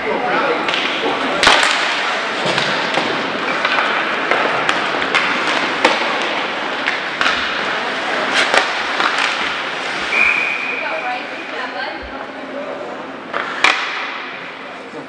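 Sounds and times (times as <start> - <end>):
hockey sticks and puck clacking: 0.4 - 11.5, 13.2 - 14.9
skates hissing on ice: 7.8 - 10.9.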